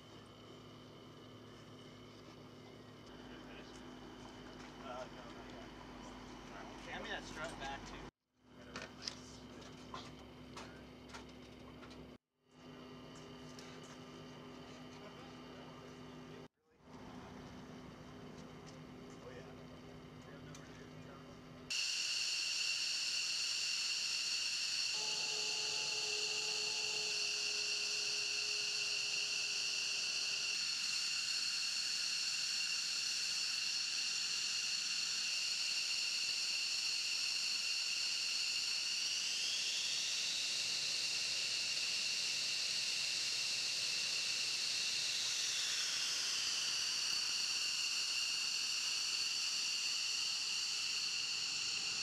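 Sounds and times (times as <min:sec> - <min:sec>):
jet engines whining: 0:17.1 - 0:52.0.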